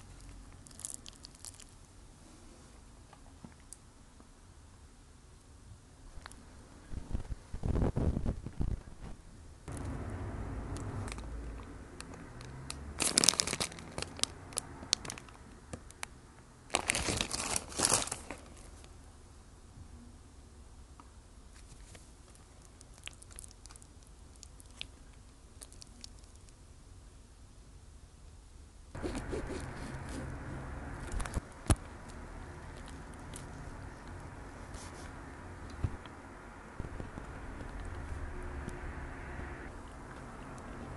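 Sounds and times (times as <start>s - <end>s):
crackles of fried chicken burger: 0.0s - 2.8s, 12.4s - 16.1s, 16.7s - 19.0s, 21.5s - 26.6s
paper wrapper crinkling: 13.0s - 14.3s, 16.7s - 18.9s.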